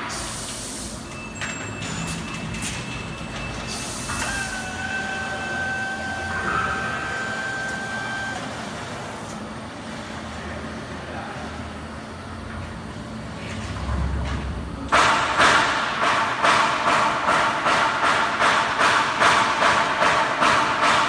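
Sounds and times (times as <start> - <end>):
machinery hum: 0.0 - 21.0
servo drives whining: 1.8 - 9.4.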